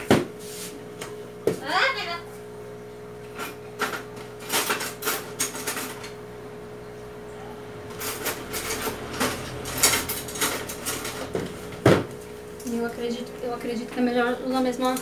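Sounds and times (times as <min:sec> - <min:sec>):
faint steady hum: 0:00.8 - 0:11.2
utensil clicking and scraping plates: 0:07.9 - 0:11.6.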